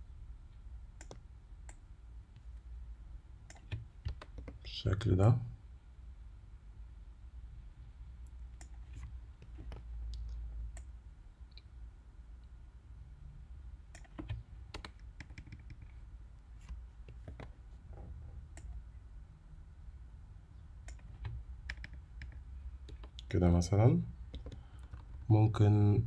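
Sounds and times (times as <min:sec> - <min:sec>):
low steady hum: 0:00.0 - 0:26.0
keyboard and mouse clicks: 0:01.0 - 0:01.8, 0:03.5 - 0:04.6, 0:13.9 - 0:16.0, 0:20.8 - 0:23.3, 0:24.3 - 0:25.2.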